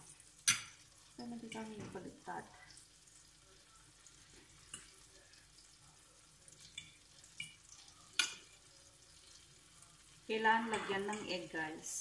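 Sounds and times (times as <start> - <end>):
bread sizzling in a pan: 0.0 - 12.0
metal fork clinking on glass dish: 0.5 - 0.8, 8.2 - 8.5, 10.7 - 11.3.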